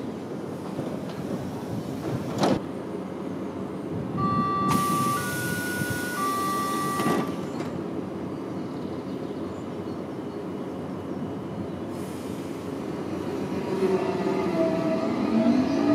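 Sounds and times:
train running noise: 0.0 - 15.9
train door warning tones: 4.1 - 7.8
train doors hissing shut: 4.5 - 7.8, 11.9 - 12.7.

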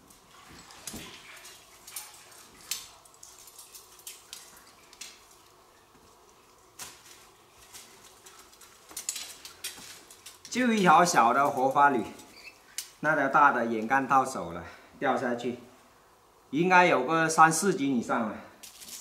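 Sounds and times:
metal hoops clinking: 6.9 - 13.0.

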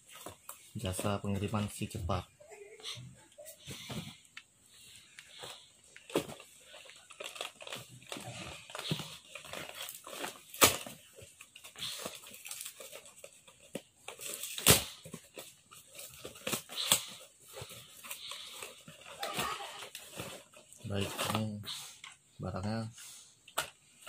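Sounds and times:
packing tape tearing: 5.4 - 21.6
cardboard box torn open: 7.2 - 11.0, 19.1 - 21.5.

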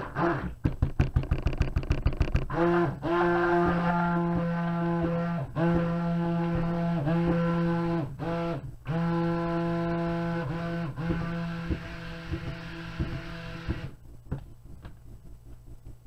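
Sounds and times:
stick blender motor whining: 2.4 - 14.0.

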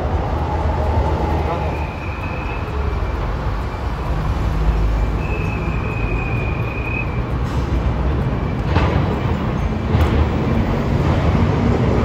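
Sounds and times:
street traffic rumble: 0.0 - 12.0
tram approaching: 0.0 - 12.0
thin high squeal: 1.5 - 4.0.

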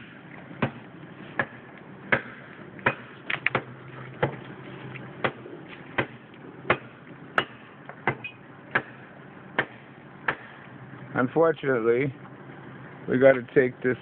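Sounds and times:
blade chopping into tree trunk: 6.0 - 9.0.

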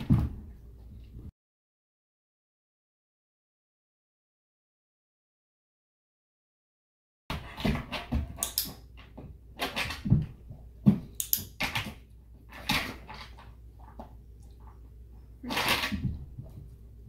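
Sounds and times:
training clicker clicks: 8.4 - 8.7, 11.1 - 11.6.

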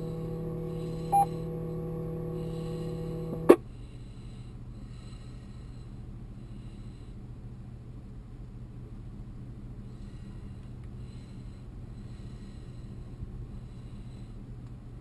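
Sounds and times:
radio carrier hum: 0.0 - 3.6
faint low hum and hiss: 0.0 - 15.0
short beep: 1.0 - 1.4.

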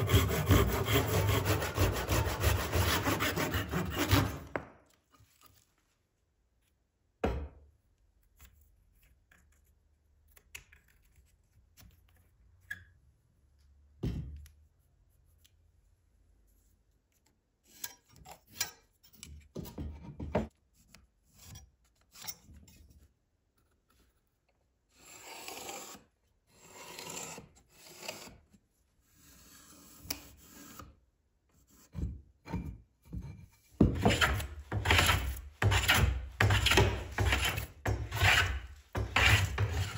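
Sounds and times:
hand plane shaving wood: 0.0 - 4.5, 33.8 - 39.9
rasping strokes: 0.0 - 4.5, 33.8 - 39.9.

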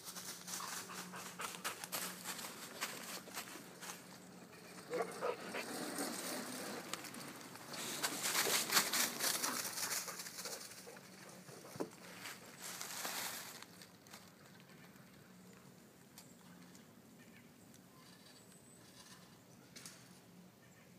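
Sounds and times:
rustling in dry leaves: 0.0 - 15.4.

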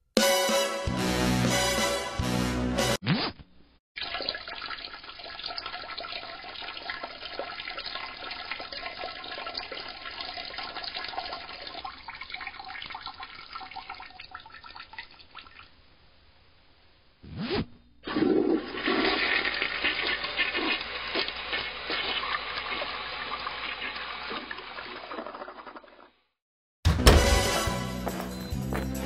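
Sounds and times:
urine splashing into toilet water: 4.0 - 15.7, 18.1 - 26.1.

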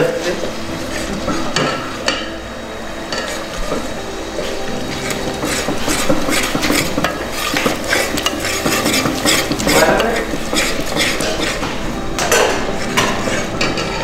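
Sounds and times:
metal spoon scraping a pot: 4.9 - 14.0.

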